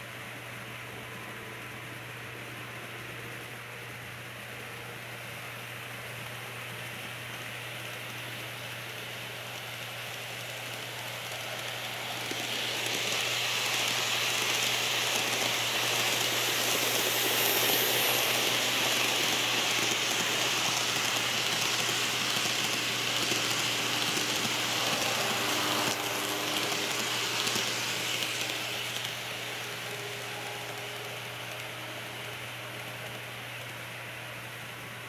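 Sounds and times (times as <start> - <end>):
model train wheels rattling on rails: 6.2 - 33.9.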